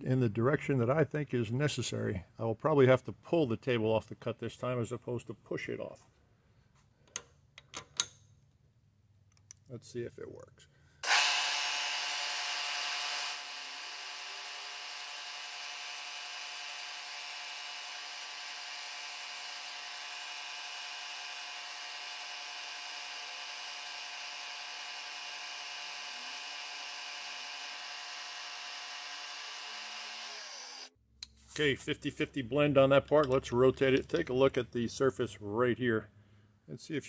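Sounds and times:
end mill cutting metal: 11.0s - 30.9s
milling machine spindle whine: 26.4s - 30.9s.

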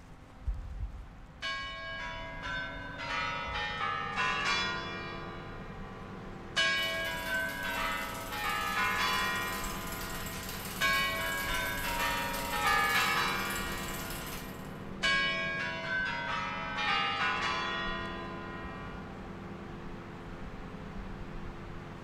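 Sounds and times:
tower chimes ringing: 6.6s - 18.8s.

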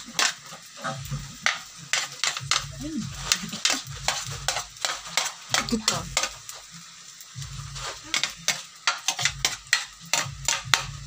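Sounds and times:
low frying sizzle: 0.0s - 11.0s
metal ladle scraping plate and wok: 7.8s - 10.8s.

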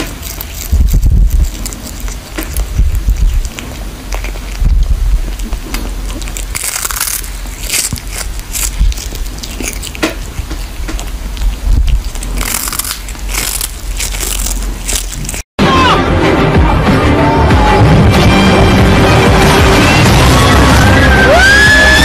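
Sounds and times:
cat crunching on fish: 0.0s - 15.5s.

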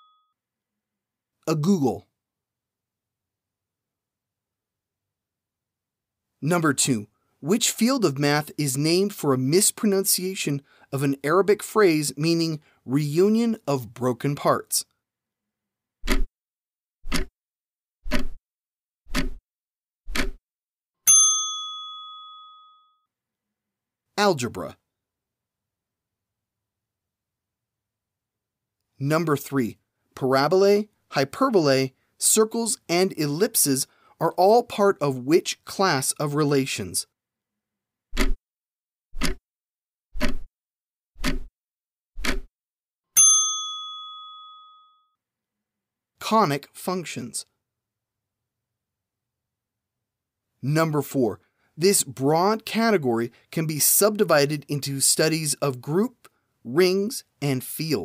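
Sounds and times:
bell ding: 0.0s - 0.4s, 21.1s - 23.1s, 43.2s - 45.2s
clock ticks: 16.0s - 16.3s, 17.1s - 17.3s, 18.1s - 18.4s, 19.1s - 19.4s, 20.1s - 20.4s, 38.2s - 38.4s, 39.2s - 39.4s, 40.2s - 40.5s, 41.2s - 41.5s, 42.2s - 42.5s.

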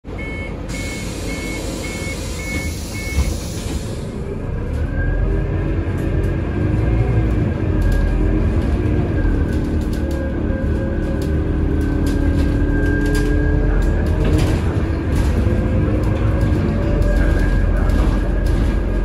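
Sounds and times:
warning beeps: 0.1s - 3.4s
bus engine pulling away: 0.1s - 19.0s.

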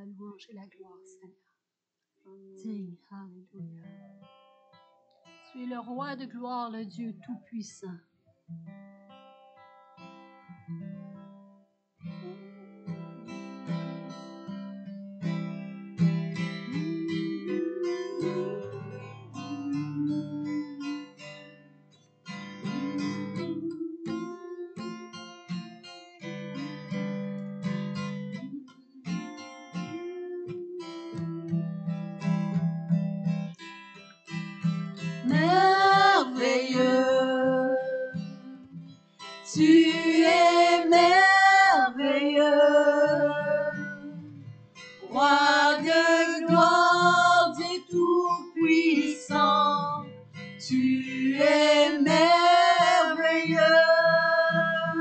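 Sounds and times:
acoustic guitar strumming: 8.5s - 55.0s
women singing: 16.6s - 21.2s, 22.6s - 25.1s, 35.2s - 38.8s, 39.5s - 44.4s, 45.0s - 55.0s.

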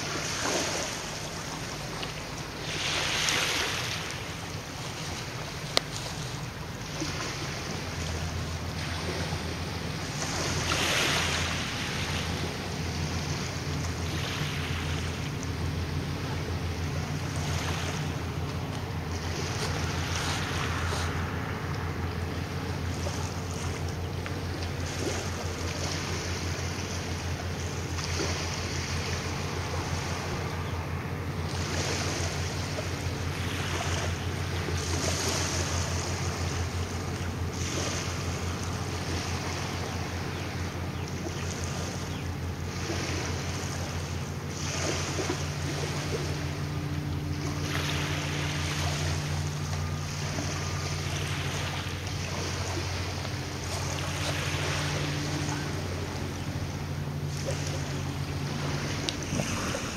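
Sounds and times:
diesel engines throbbing hum: 0.0s - 59.9s
wind buffeting microphone: 58.0s - 59.9s.

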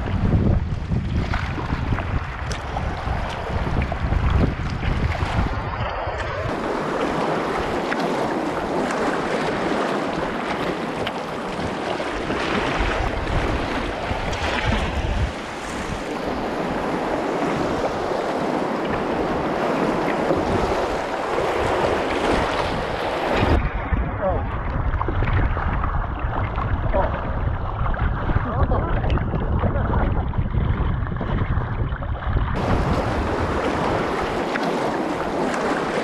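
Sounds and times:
wind buffeting microphone: 0.0s - 36.0s
river rapids splashing: 5.9s - 23.6s, 32.6s - 36.0s.

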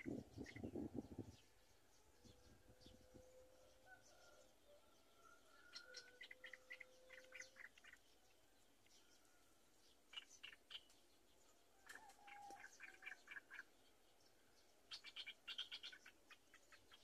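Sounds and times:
high chirping calls: 0.0s - 1.4s, 5.6s - 8.3s, 10.1s - 11.0s, 12.0s - 13.7s, 14.9s - 17.0s.

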